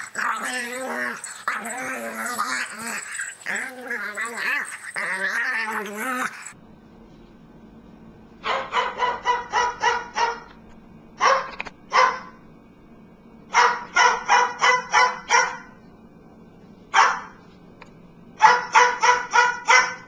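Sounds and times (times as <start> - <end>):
cockatoo mimicking dog barks: 8.4 - 10.5.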